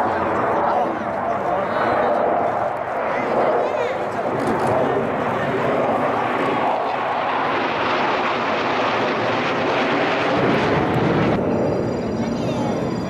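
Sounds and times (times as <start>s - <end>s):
jet engines rushing overhead: 0.0s - 13.0s.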